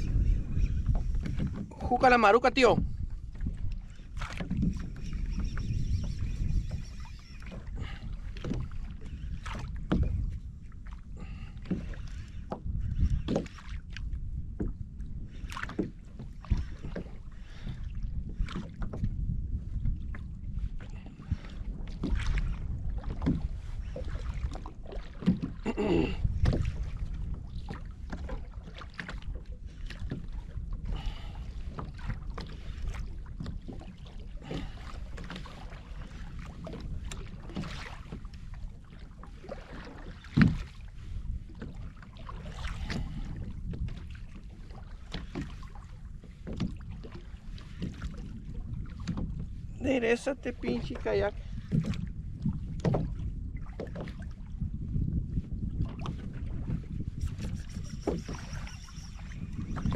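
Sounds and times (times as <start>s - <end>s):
water slapping kayak hull: 0.0s - 59.9s
wind rumble on microphone: 0.0s - 59.9s
brief wavering tone: 57.2s - 59.9s.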